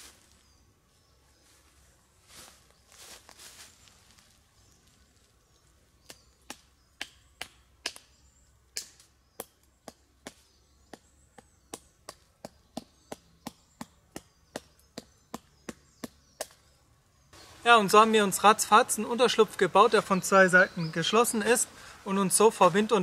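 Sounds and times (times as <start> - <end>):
faint rustling: 1.4 - 5.7.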